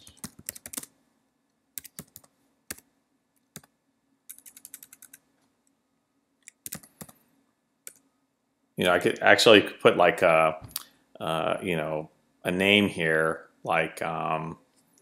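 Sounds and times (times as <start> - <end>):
keyboard typing: 0.0 - 0.9, 1.8 - 2.9, 3.5 - 5.2, 6.4 - 7.2, 7.8 - 8.1.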